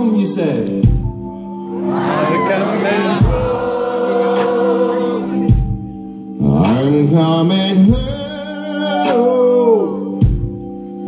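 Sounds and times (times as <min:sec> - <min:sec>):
live band playing slow groove: 0:00.6 - 0:11.0
audience singing along: 0:01.7 - 0:05.7
man singing into microphone: 0:06.4 - 0:10.2.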